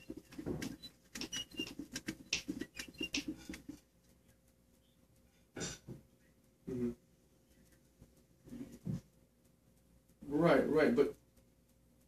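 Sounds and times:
breathy noises: 0.0 - 3.8
man speaking indistinctly: 10.2 - 11.2.

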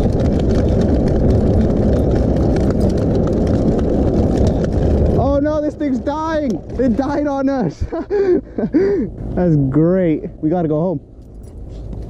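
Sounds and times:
wind on microphone: 0.0 - 9.4
trike rolling on asphalt: 0.0 - 12.0.

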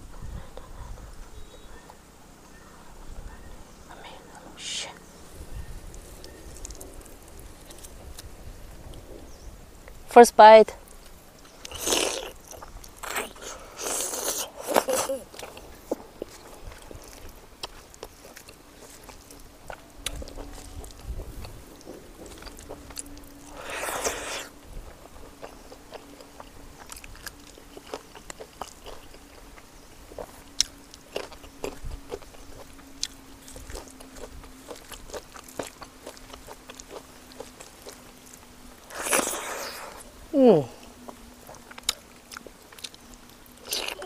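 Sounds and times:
faint steady hum: 0.0 - 44.0
chewing and mouth clicks: 5.9 - 8.3, 10.8 - 40.1, 40.8 - 44.0.

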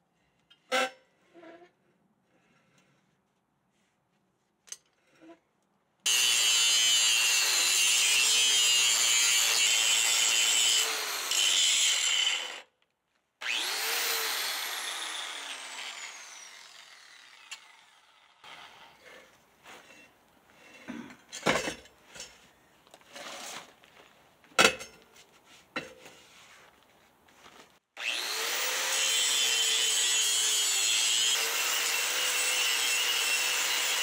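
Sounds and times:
hand grinder grinding metal: 6.1 - 12.7, 13.4 - 20.0, 28.0 - 34.0.

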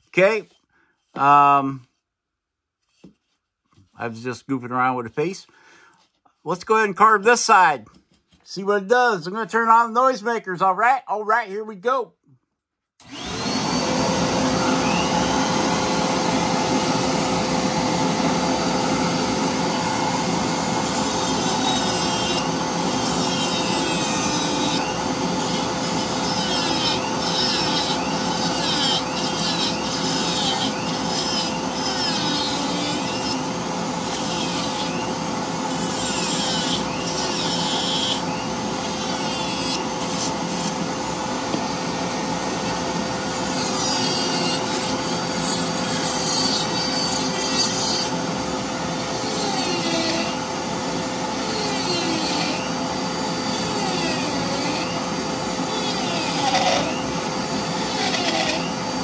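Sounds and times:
rotary tool grinding wood: 13.0 - 17.3, 18.1 - 59.0
dust collector hum: 13.0 - 59.0.

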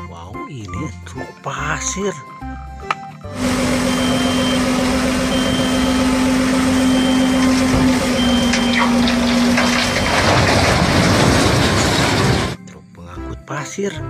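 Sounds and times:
truck engine and hydraulic pump whine: 3.2 - 12.6
concrete slabs crashing onto dirt: 7.5 - 12.6.

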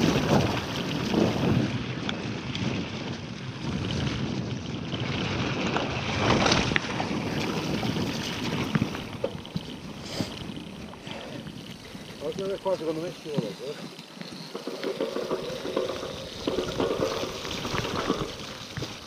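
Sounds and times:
wind rushing over microphone: 0.0 - 9.2
bike clicks and rattles: 0.0 - 19.0
bike tyres rolling on dirt: 0.0 - 19.0.

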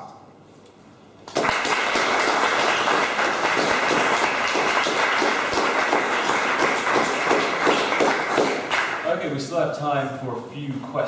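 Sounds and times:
audience applause: 1.3 - 9.1.

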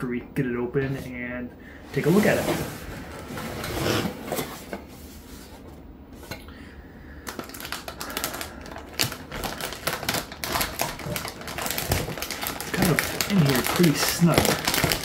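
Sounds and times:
packaging crackling: 7.2 - 15.0.

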